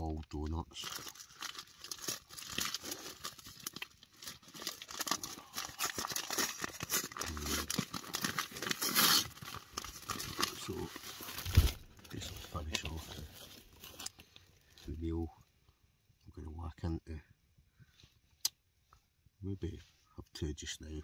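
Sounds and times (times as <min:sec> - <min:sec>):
plastic packet crinkling: 0:00.4 - 0:14.8.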